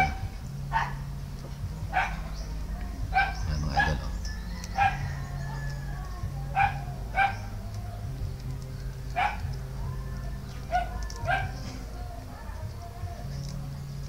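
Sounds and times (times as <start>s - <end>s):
dog barking: 0.0s - 1.0s, 1.9s - 5.8s, 6.5s - 7.6s, 9.1s - 10.0s, 10.7s - 11.8s
steady low hum: 0.0s - 14.0s.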